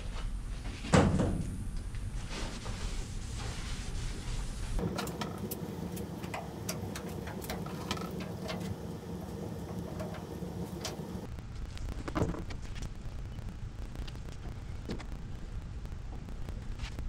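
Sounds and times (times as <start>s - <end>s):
steady low hum: 0.0s - 11.9s
spreader scraping and tapping: 4.8s - 11.2s.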